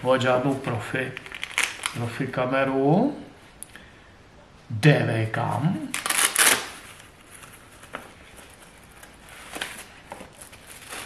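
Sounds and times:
packing wrap rustling: 0:00.6 - 0:02.0, 0:05.9 - 0:11.0.

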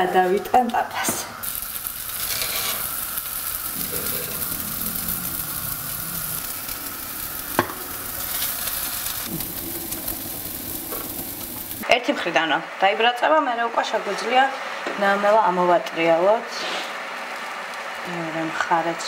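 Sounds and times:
nuggets sizzling in a frying pan: 0:01.4 - 0:11.9.

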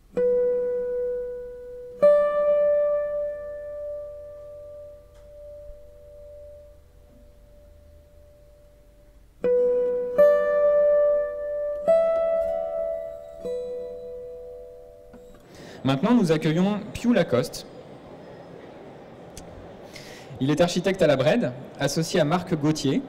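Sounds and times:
plucked notes ringing: 0:00.0 - 0:15.5.

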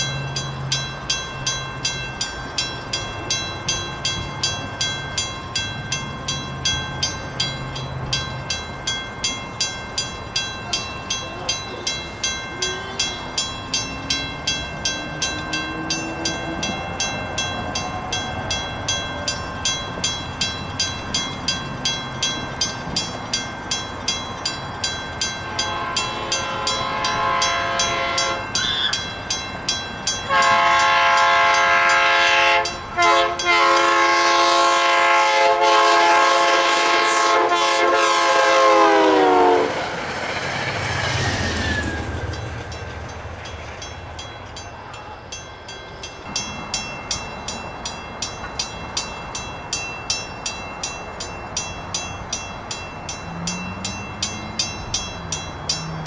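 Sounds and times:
crossing warning bell ringing: 0:00.0 - 0:56.0
train rumbling over crossing: 0:00.0 - 0:56.0
train horn blasts: 0:25.5 - 0:28.9, 0:30.3 - 0:39.8.

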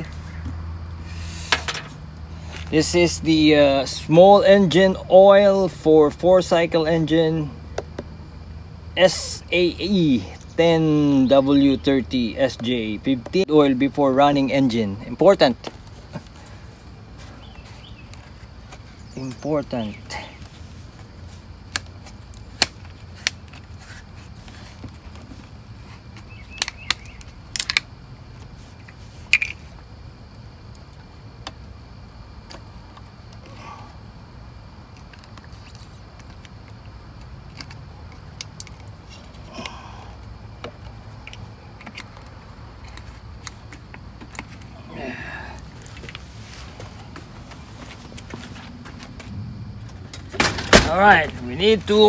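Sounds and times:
sharp plastic clicks and taps: 0:07.7 - 0:08.1.

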